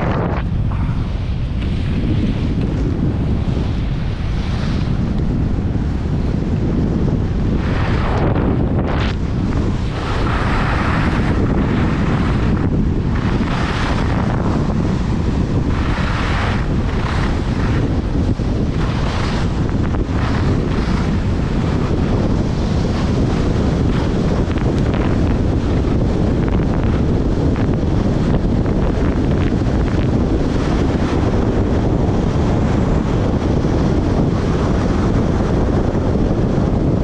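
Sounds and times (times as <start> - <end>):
wind buffeting microphone: 0.0 - 37.0
skis scraping snow: 7.4 - 27.6.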